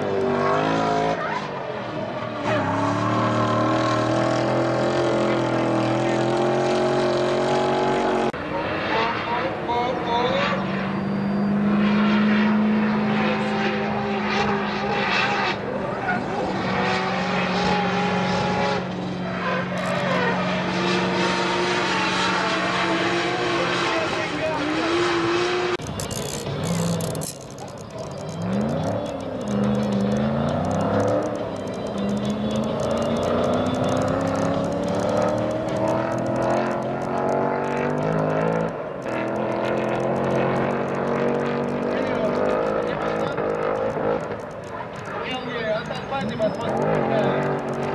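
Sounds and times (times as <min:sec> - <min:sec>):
high wavering engine note: 0:02.4 - 0:38.6.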